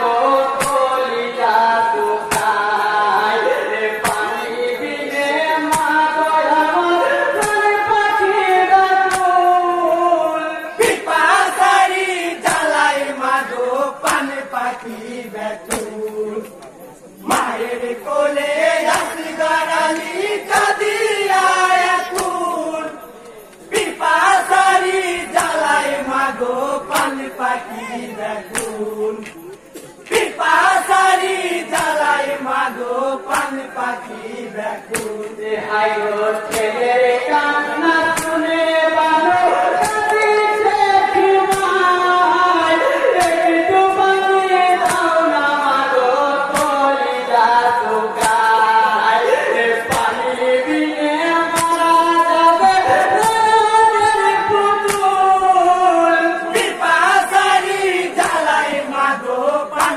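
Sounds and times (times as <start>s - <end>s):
men singing a lament together: 0.0s - 59.9s
steady beat of sharp strikes: 4.0s - 4.6s, 5.6s - 6.3s, 10.8s - 15.0s, 15.6s - 16.6s, 17.2s - 22.7s, 23.4s - 35.7s, 36.3s - 37.2s, 41.4s - 41.8s, 43.2s - 43.6s, 44.7s - 45.2s.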